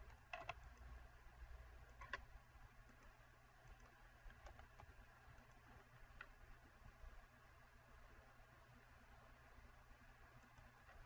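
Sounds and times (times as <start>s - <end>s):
faint mouse clicks: 0.0s - 0.9s, 1.8s - 6.4s, 10.2s - 11.0s.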